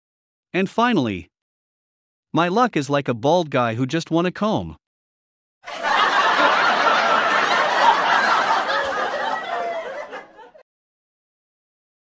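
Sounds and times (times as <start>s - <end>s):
crowd laughing: 5.7s - 10.6s.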